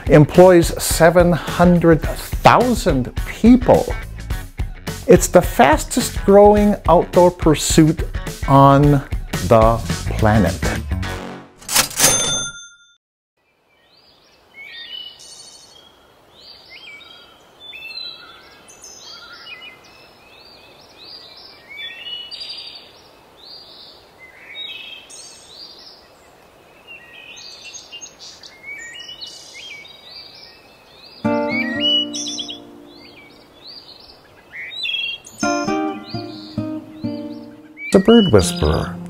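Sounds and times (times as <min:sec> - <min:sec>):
steady outdoor hiss: 0:00.0 - 0:10.1, 0:13.4 - 0:39.0
songbirds chirping and trilling: 0:13.4 - 0:39.0.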